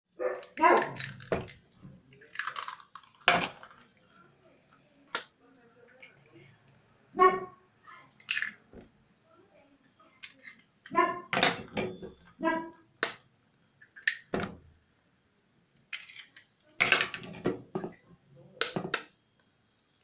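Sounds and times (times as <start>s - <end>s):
eggs cracking on bowl rim: 0.4s - 3.9s.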